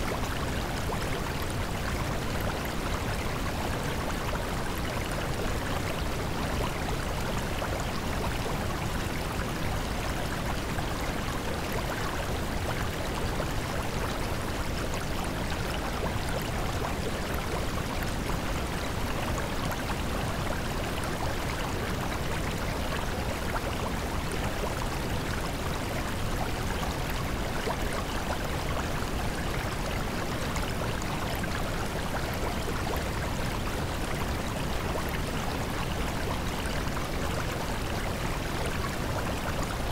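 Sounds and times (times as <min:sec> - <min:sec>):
rushing water: 0:00.0 - 0:39.9.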